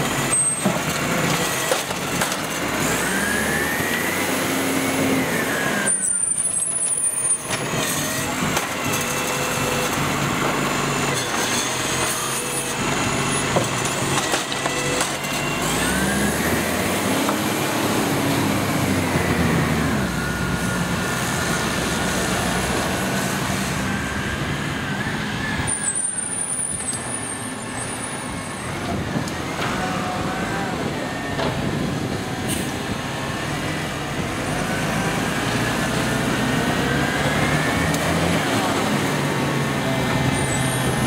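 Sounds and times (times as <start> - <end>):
garbage truck diesel engine: 0.0 - 41.0.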